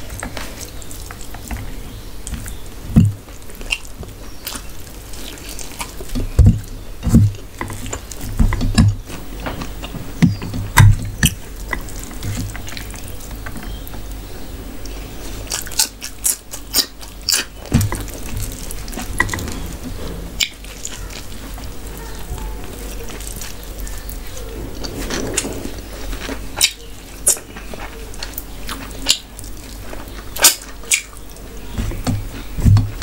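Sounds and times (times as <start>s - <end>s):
fingers squishing wet food: 0.0s - 14.2s, 14.8s - 25.0s, 26.3s - 33.0s
chewing with lip smacks: 3.3s - 8.3s, 14.8s - 25.4s, 26.2s - 33.0s.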